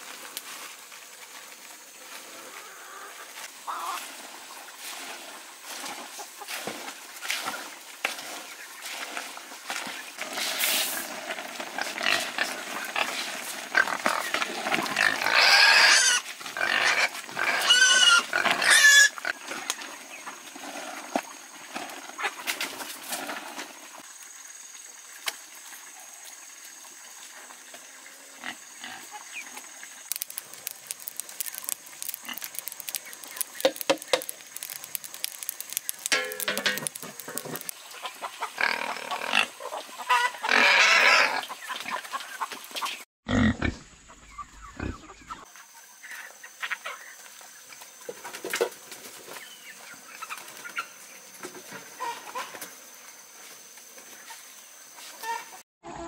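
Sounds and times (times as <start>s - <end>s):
pigs squealing: 14.8s - 19.4s, 38.4s - 41.6s.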